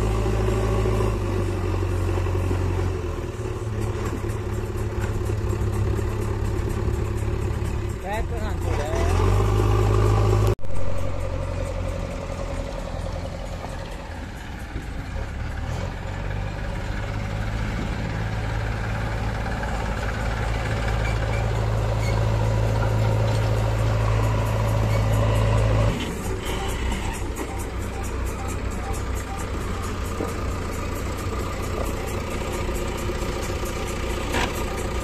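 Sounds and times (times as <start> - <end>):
diesel engines droning: 0.0 - 35.0.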